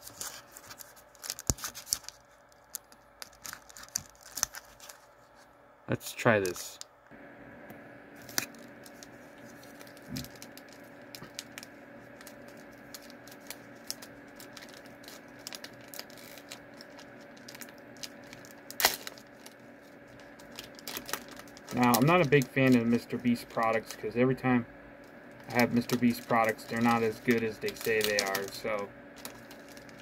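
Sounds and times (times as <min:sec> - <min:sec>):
faint hum: 0:00.0 - 0:30.0.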